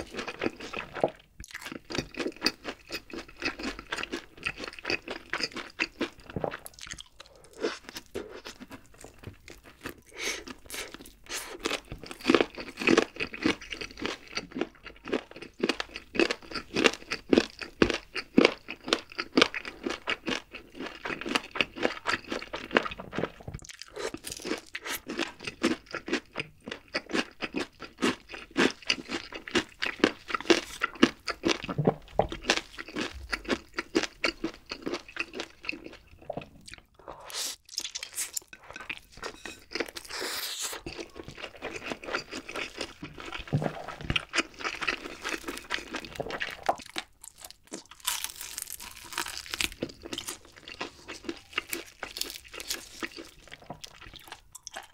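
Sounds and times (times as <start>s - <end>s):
crunchy chewing: 0.0s - 54.9s
noodle slurping: 36.8s - 41.1s.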